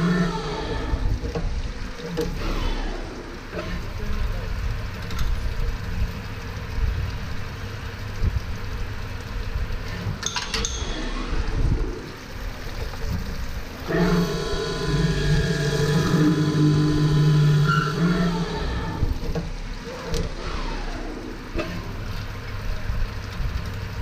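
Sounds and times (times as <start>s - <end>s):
spindle drilling whine: 0.0s - 1.5s, 2.1s - 4.4s, 13.7s - 22.6s
machine motor hum: 0.0s - 24.0s
sharp machine click: 10.2s - 11.3s.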